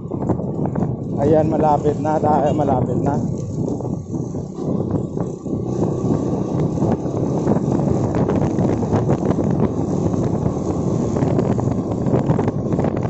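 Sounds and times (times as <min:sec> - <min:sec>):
motorcycle engine: 0:00.0 - 0:13.0
road noise: 0:00.0 - 0:13.0
wind buffeting microphone: 0:00.0 - 0:13.0.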